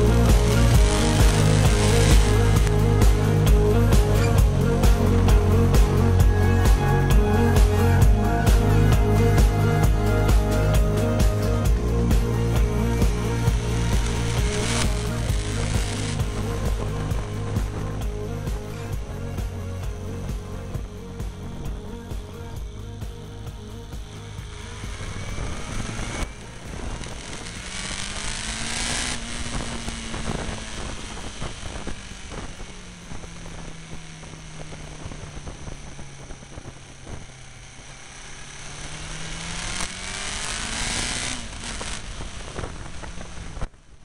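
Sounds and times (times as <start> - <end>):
motorcycle engine: 0.0 - 44.0
wind on microphone: 29.2 - 37.5, 41.4 - 44.0.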